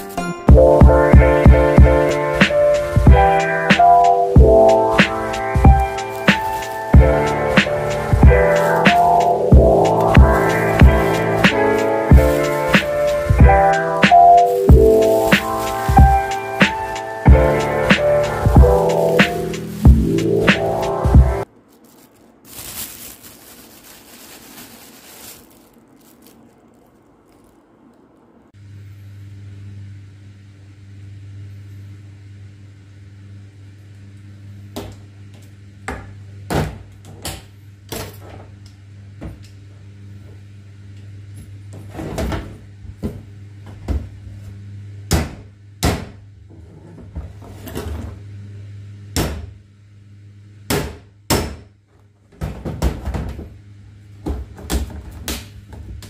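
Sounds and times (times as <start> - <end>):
low hum: 0.5 - 22.0.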